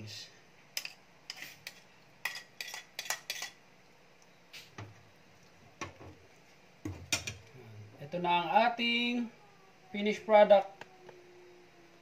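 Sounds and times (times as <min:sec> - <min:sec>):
metal spoon clinking on ceramic plates: 0:00.8 - 0:03.6.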